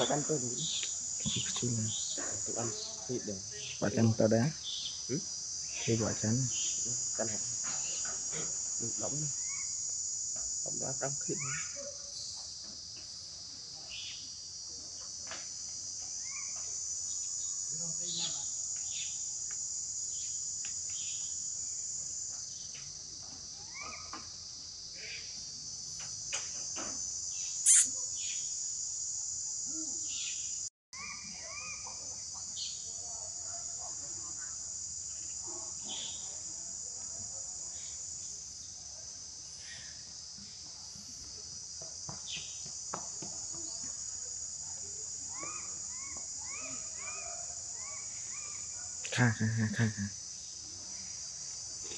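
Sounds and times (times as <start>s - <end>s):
short insect chirps: 0.0s - 12.8s, 13.8s - 14.4s, 15.0s - 33.0s, 33.6s - 36.9s, 39.4s - 40.6s, 43.4s - 51.9s
high-pitched insect chorus: 0.0s - 51.9s.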